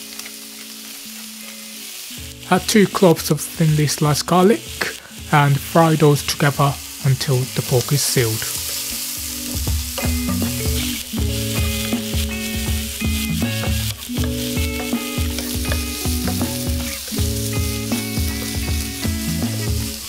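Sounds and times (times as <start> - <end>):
meat sizzling in hot oil: 0.0 - 20.0
background music with bass line: 8.2 - 20.0.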